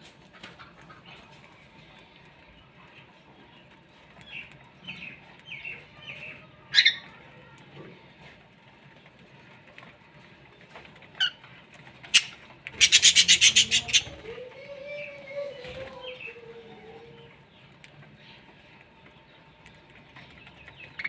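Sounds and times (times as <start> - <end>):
parrots chirping: 12.1 - 14.5.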